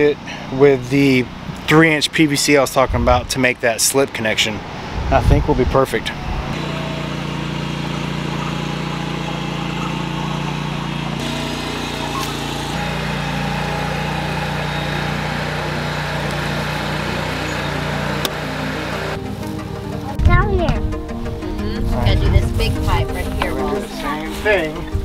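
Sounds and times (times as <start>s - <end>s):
engine drone: 4.4s - 20.2s.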